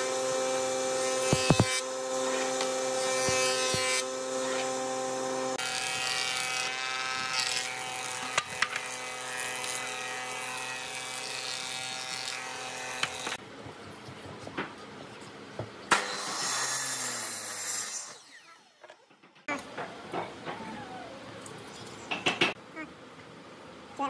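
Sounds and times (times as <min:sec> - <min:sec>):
planer whining: 0:00.0 - 0:07.4.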